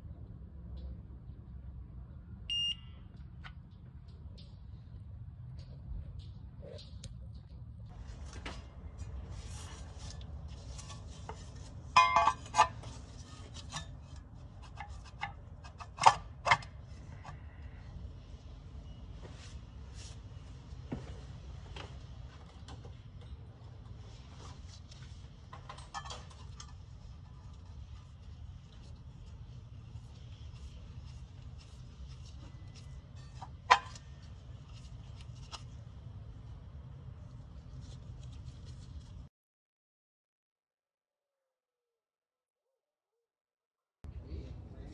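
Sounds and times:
metal scraping and clinking: 0:09.0 - 0:17.4, 0:25.5 - 0:28.3.

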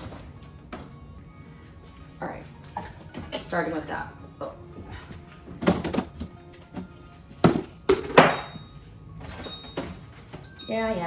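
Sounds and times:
soft background music: 0:00.0 - 0:11.0
plastic containers thunking: 0:05.6 - 0:06.4, 0:07.4 - 0:08.4.

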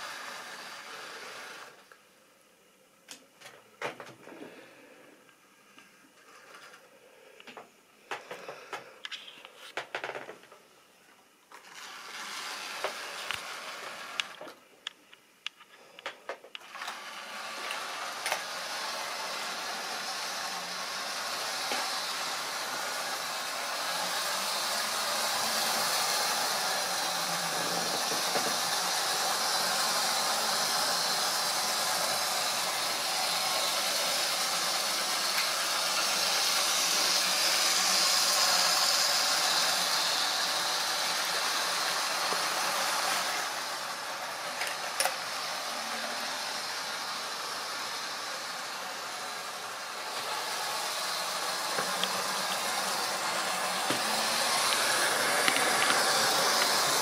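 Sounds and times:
model train motor whirring: 0:00.0 - 0:01.9, 0:11.5 - 0:14.5, 0:16.6 - 0:57.0
model train clicks and rattles: 0:27.6 - 0:30.1, 0:54.6 - 0:57.0.

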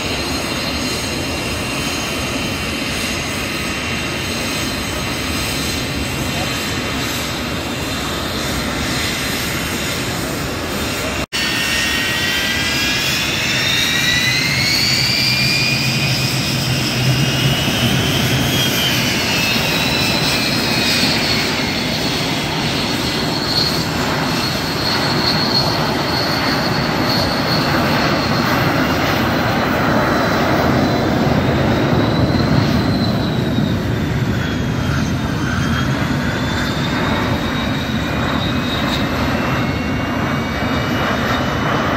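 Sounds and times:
jet aircraft taxiing: 0:00.0 - 0:41.9.

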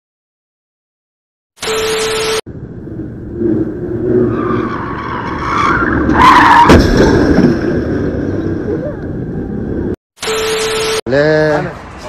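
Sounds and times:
low traffic rumble: 0:02.5 - 0:10.0
car tyres screeching: 0:02.8 - 0:08.8
car crashing into bus: 0:06.4 - 0:08.2.

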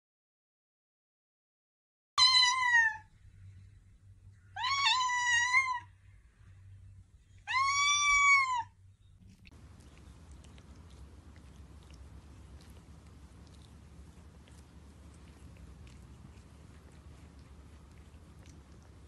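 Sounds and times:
cat meowing: 0:02.2 - 0:03.1, 0:04.5 - 0:05.9, 0:07.4 - 0:08.7.

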